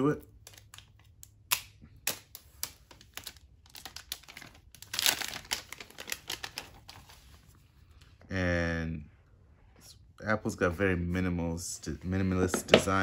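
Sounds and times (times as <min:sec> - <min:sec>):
plastic shrink wrap crinkling: 0:02.2 - 0:07.5.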